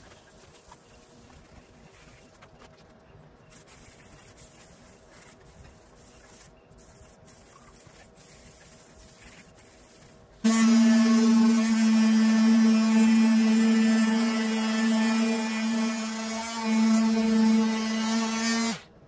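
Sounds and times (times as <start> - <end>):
electric sander running: 10.5 - 18.8.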